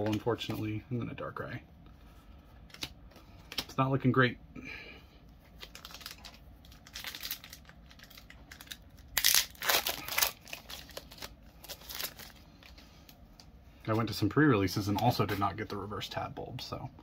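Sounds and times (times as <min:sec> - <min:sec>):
foil wrapper crinkling: 0:05.5 - 0:12.8
foil pack tearing: 0:05.6 - 0:12.4.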